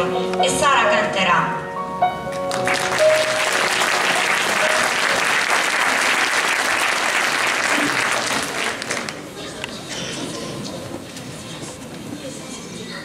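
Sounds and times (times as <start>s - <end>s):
audience applauding: 2.4s - 9.7s.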